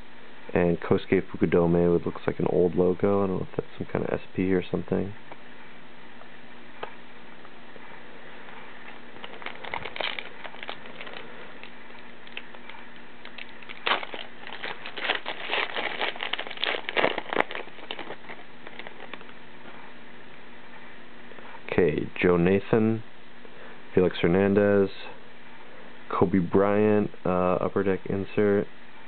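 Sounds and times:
card pack wrapper crinkling: 9.2 - 19.3.

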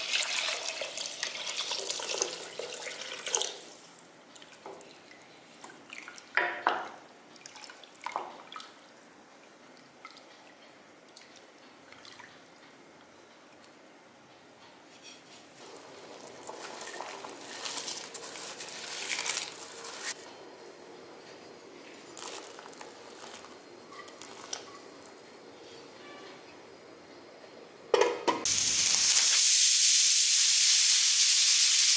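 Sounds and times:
food scraped splashing into pot: 15.0 - 20.2
ladle stirring liquid: 15.2 - 20.2.

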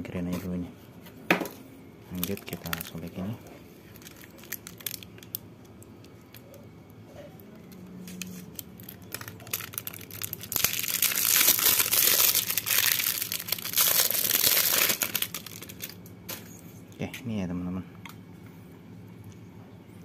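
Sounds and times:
plastic wrapping crinkling and tearing: 2.1 - 6.6, 7.6 - 16.1.

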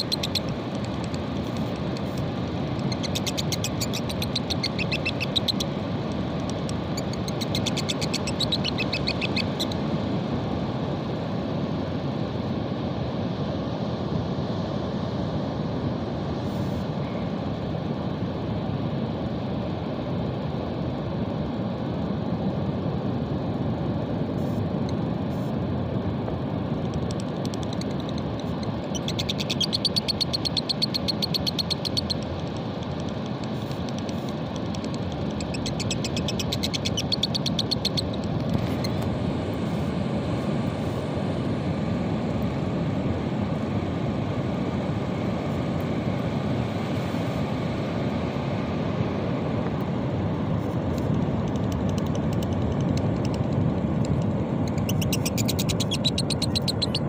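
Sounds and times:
parrots chattering: 0.0 - 1.2, 2.8 - 5.7, 6.6 - 9.8, 27.4 - 32.2, 35.0 - 38.9, 54.7 - 57.0.

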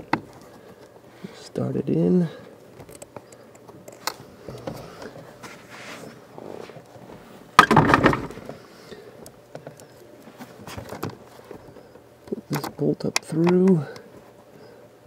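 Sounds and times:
parts clicking and scraping: 2.6 - 7.0, 7.6 - 14.6.

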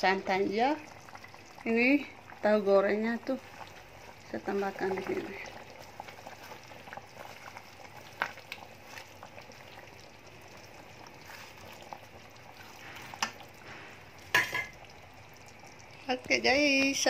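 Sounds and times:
curry bubbling in a pan: 0.0 - 17.0.

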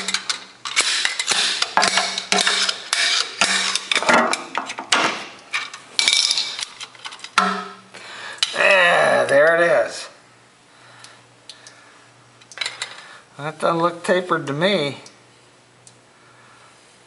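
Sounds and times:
hand tools clanking on metal: 0.0 - 7.8.

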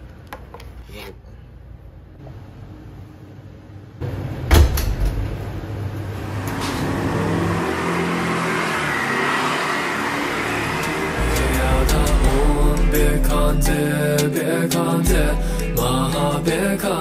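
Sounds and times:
city traffic: 5.8 - 13.0.

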